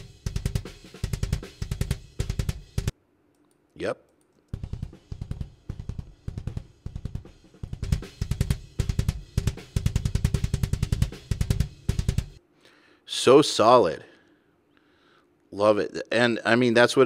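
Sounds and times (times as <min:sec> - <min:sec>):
kick drum hits: 0:00.0 - 0:02.9, 0:04.6 - 0:12.4.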